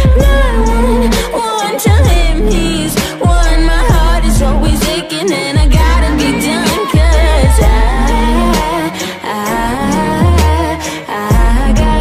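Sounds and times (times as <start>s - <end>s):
woman singing pop song: 0.0s - 12.0s
deep sliding bass notes: 2.0s - 5.0s, 5.6s - 8.9s.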